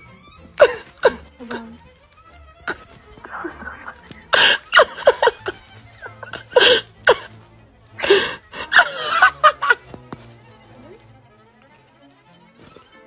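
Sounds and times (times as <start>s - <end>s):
person laughing in breathy bursts: 4.3s - 7.3s, 8.0s - 9.8s.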